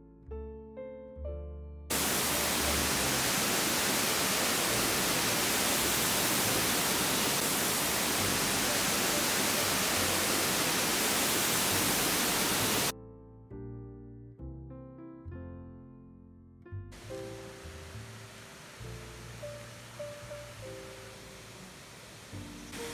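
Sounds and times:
soft piano music: 0.0 - 22.9
river water rushing over weir: 1.9 - 12.9, 17.0 - 22.9.

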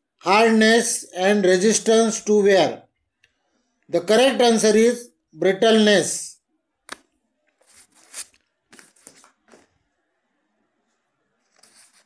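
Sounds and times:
paper rustling and crinkling: 7.5 - 9.8, 11.4 - 12.0.

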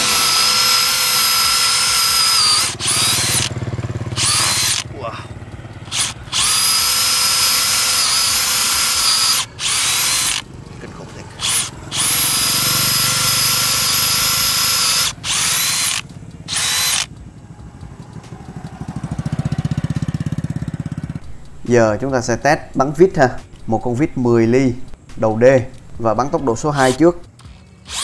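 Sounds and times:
cordless drill boring into wood: 0.0 - 4.9, 5.8 - 10.4, 11.4 - 17.1, 26.7 - 28.0
low pulsing hum: 0.0 - 28.0.

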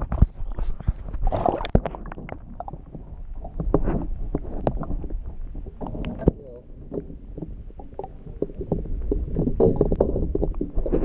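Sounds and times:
water splashing at boat side: 0.8 - 6.4.

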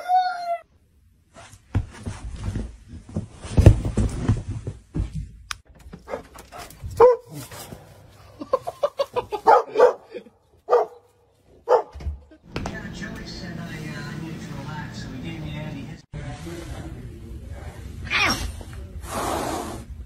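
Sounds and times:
scuffling and dull thumps: 1.3 - 8.0
dog barking and yelping: 6.1 - 7.5, 9.3 - 12.0.

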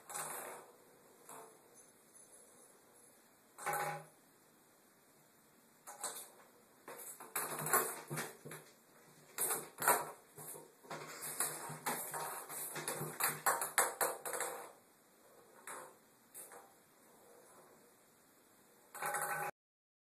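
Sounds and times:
ping pong ball clattering in bathtub: 6.9 - 8.7, 9.4 - 14.8, 19.0 - 19.5.

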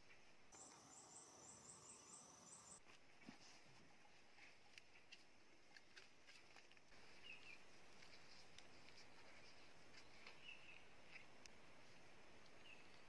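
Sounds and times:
faint background hiss: 0.0 - 13.0.

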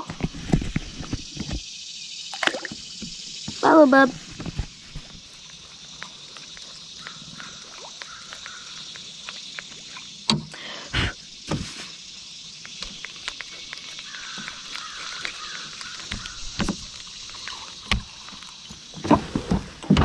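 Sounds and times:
outdoor background hiss: 0.0 - 20.0
fishing rod and reel clicking: 7.0 - 9.9, 12.5 - 18.6.

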